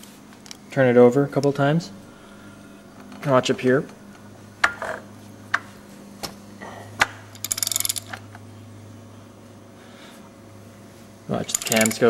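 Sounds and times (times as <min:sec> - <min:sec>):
ratchet wrench clicking: 0:11.5 - 0:12.0.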